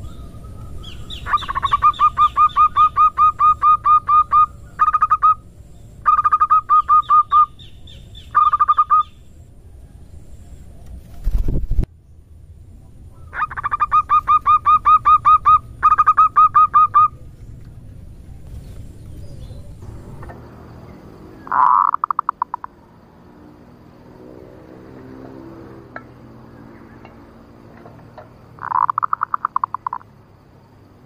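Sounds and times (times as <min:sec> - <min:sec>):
rough rattling dove call: 0:00.0 - 0:05.4, 0:13.3 - 0:17.2, 0:21.4 - 0:22.8, 0:27.8 - 0:30.1.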